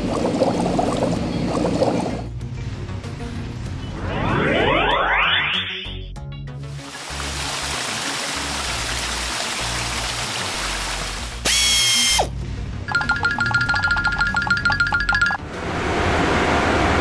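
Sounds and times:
background music: 0:01.6 - 0:15.6
high tone sliding downward: 0:03.9 - 0:06.1
water spraying hiss: 0:06.7 - 0:11.4.

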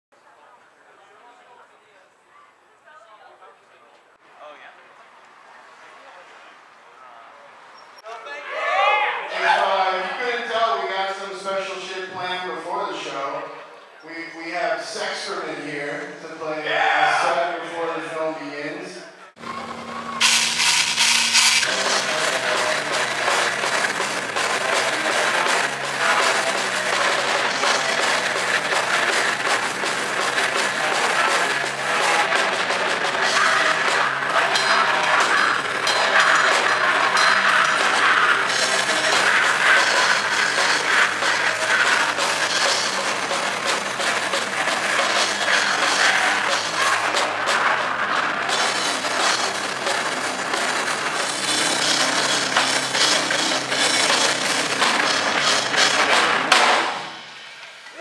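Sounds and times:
drums: 0:08.7 - 0:13.5, 0:19.3 - 0:58.0
heavy metal band playing: 0:19.4 - 0:57.6
distorted electric guitar: 0:19.4 - 0:58.0.

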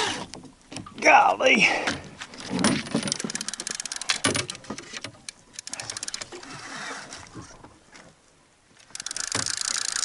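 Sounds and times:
fishing reel clicking: 0:03.1 - 0:04.3, 0:05.5 - 0:06.5, 0:08.8 - 0:10.0.

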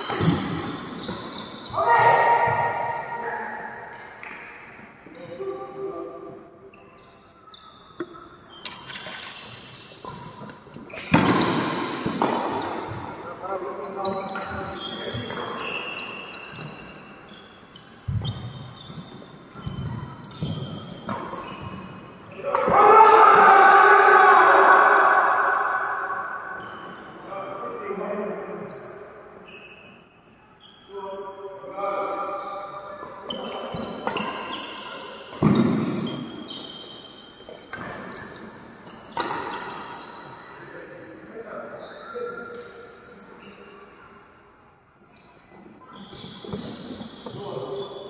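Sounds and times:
shoes squeaking on court: 0:00.0 - 0:01.8, 0:02.4 - 0:05.4, 0:06.7 - 0:22.8, 0:32.4 - 0:40.6, 0:41.8 - 0:48.0.

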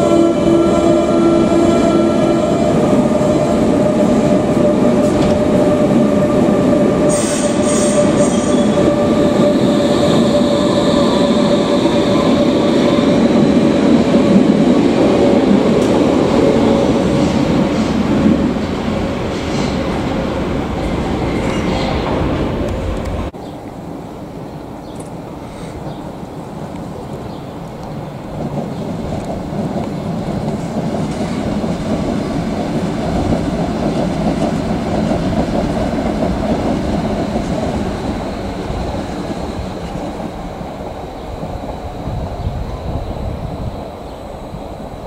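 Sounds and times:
train doors closing: 0:00.0 - 0:23.4
train wheel noise: 0:00.0 - 0:23.4, 0:25.0 - 0:45.0.

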